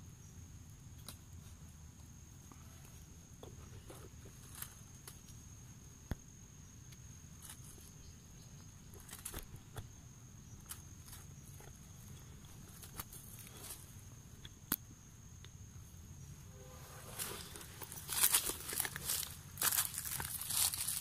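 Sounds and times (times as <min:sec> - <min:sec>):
faint rustling: 0:16.2 - 0:21.0.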